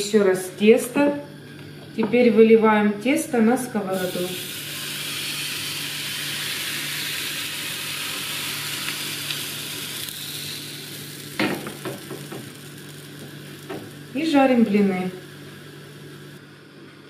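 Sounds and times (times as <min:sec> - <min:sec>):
batter sizzling on hot pan: 0:03.9 - 0:16.4.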